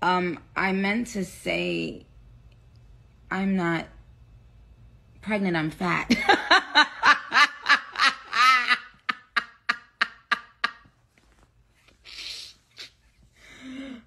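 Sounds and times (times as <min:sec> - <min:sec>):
woman laughing hard: 0:06.1 - 0:10.9
long breath: 0:13.4 - 0:14.0.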